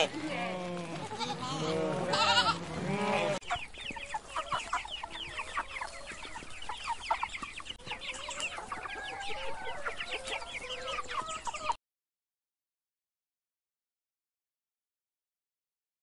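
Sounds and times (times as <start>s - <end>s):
chicks peeping: 0.0s - 11.8s.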